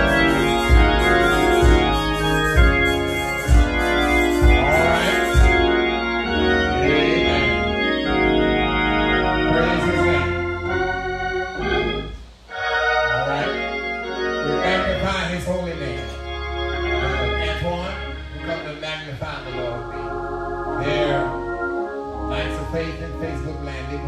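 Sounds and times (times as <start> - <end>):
organ holding chords: 0.0 - 24.0
man preaching: 4.4 - 5.8, 6.4 - 8.3, 9.1 - 10.6, 12.8 - 16.2, 16.8 - 21.5, 22.2 - 24.0.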